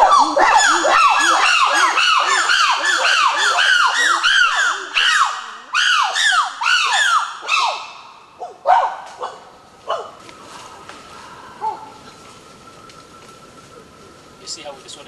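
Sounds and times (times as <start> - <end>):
chimpanzees pant-hooting: 0.0 - 5.3, 10.6 - 12.1.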